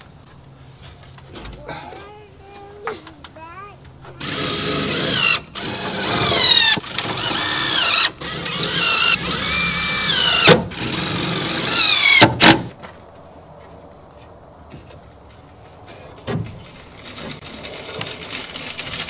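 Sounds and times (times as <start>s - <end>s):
power drill driving screws: 4.2s - 12.7s.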